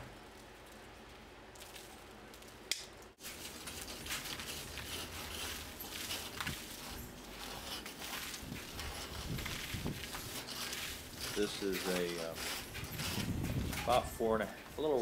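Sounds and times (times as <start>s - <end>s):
hand tool scraping cement: 3.2s - 15.0s.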